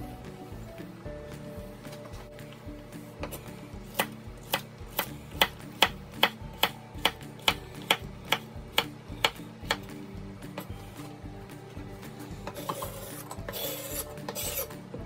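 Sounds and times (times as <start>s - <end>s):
knife chopping on wooden board: 3.2s - 9.9s.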